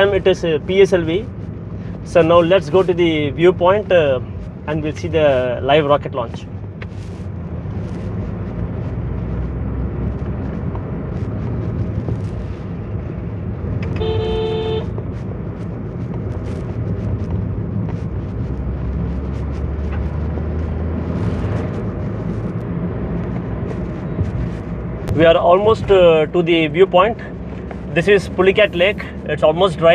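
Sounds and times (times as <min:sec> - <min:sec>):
car cabin engine and road drone: 0:00.0 - 0:29.9
vehicle horn honking: 0:13.8 - 0:15.0.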